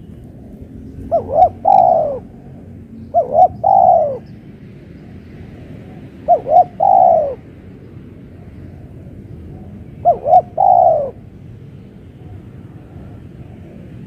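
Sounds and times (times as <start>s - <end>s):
dove cooing: 0.9s - 4.3s, 5.0s - 7.5s, 8.4s - 11.3s.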